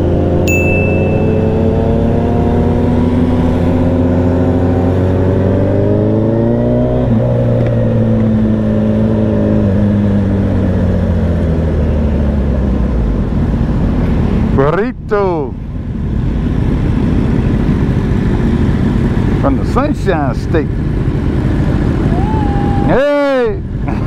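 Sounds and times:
motorcycle engine accelerating: 0.0 - 12.6
wind and road noise: 0.0 - 24.0.

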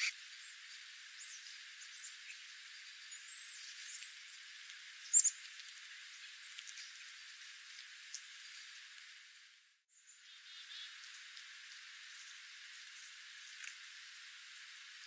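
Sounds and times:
bird chip calls: 5.0 - 7.0.

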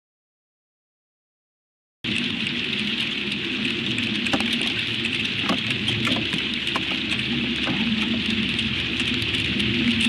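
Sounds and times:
hailstones ticking: 2.1 - 10.0.

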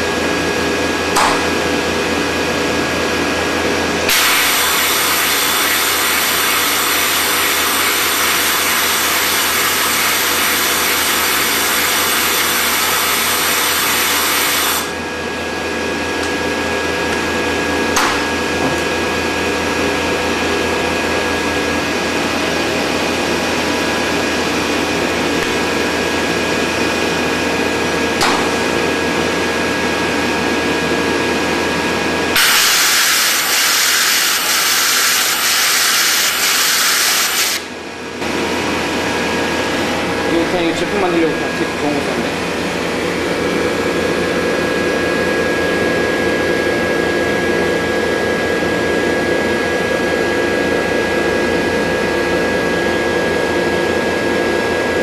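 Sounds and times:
machine hum with whine: 0.0 - 55.0
welding machine hiss: 4.1 - 15.0, 32.3 - 37.7
spark crackle: 4.2 - 14.9, 32.4 - 37.6.

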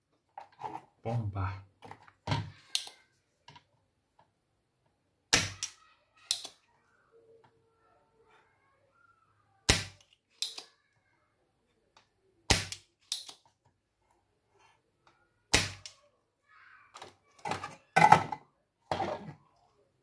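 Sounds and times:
sharp snaps: 5.3 - 6.7, 9.6 - 10.8, 12.5 - 13.4, 15.5 - 16.0.

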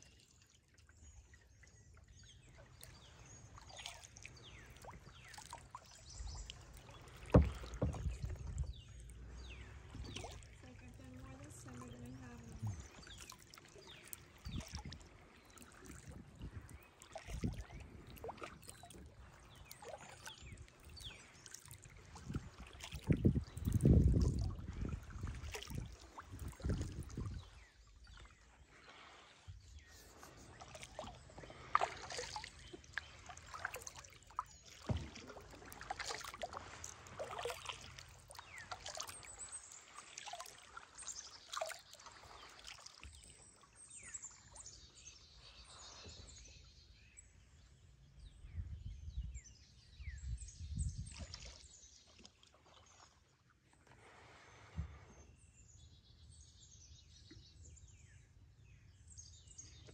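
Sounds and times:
water sloshing against hull: 0.0 - 59.9
water dripping off paddle: 1.6 - 28.3, 29.8 - 43.4
birds chirping: 2.0 - 18.0
dull low thumps: 7.1 - 13.0.

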